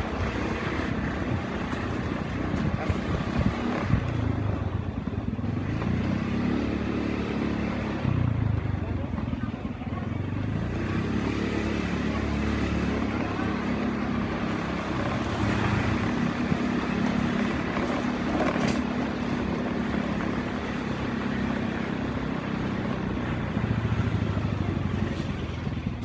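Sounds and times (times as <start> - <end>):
small motorcycle engine running: 0.0 - 26.0.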